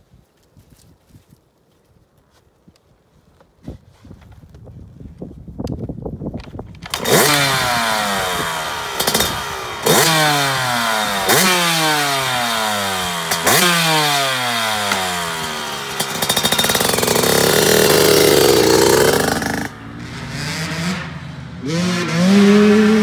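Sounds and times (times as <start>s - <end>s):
dirt bike engine revving: 6.9s - 23.0s.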